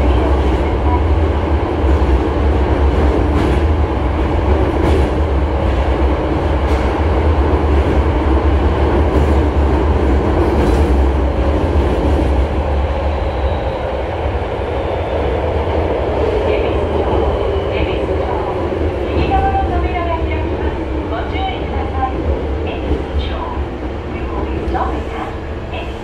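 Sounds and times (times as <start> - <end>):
train wheels rumbling: 0.0 - 26.0.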